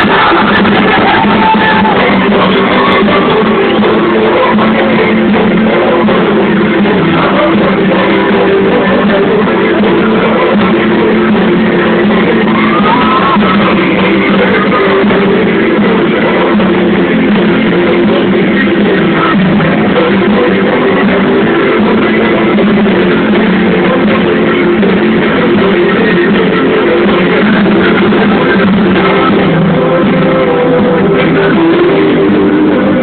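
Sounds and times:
person singing: 0.0 - 33.0
pop-rock band playing: 0.0 - 33.0.

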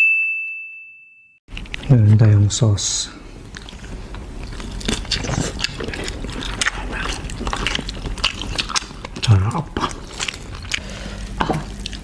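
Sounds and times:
chewing shrimp: 3.4 - 12.0.

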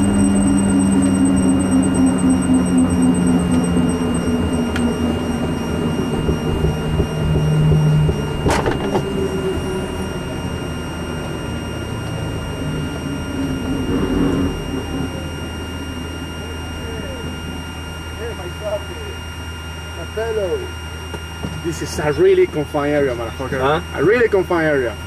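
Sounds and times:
helicopter engine and rotor: 0.0 - 25.0.

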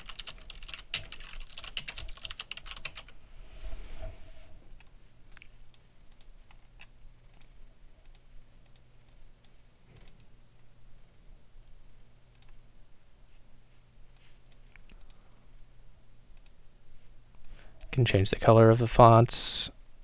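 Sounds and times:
low electrical hum: 0.0 - 20.0
computer mouse clicks: 5.3 - 9.2, 9.9 - 10.3, 12.3 - 12.6, 16.4 - 16.6.

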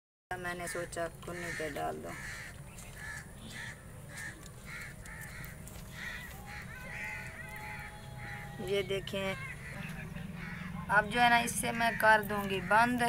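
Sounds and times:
crow cawing: 0.5 - 13.0
steady low rumble: 5.0 - 13.0.

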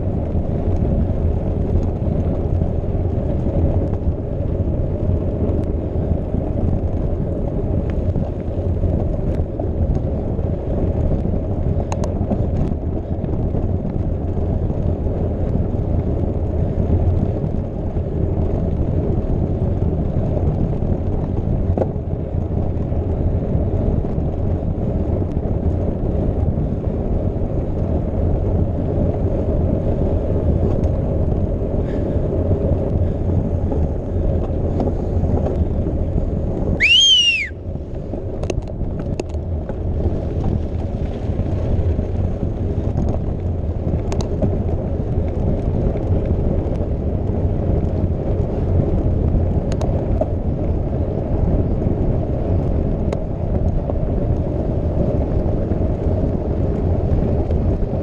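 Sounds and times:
wind noise on microphone: 0.0 - 58.0
short whistle-like tone: 36.8 - 37.6.

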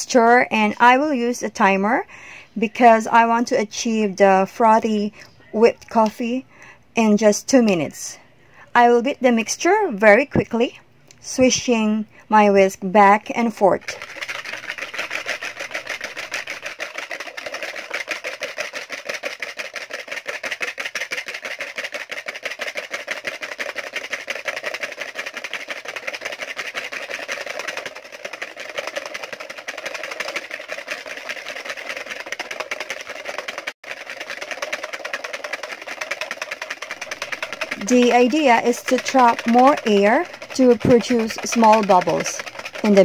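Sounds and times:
whisk beating mixture in bowl: 13.2 - 43.0.

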